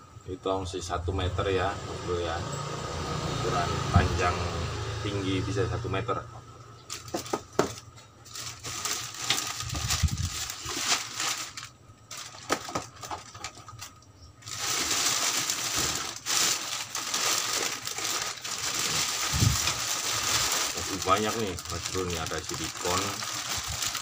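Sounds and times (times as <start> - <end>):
plastic bin bag crinkling: 6.9 - 24.0.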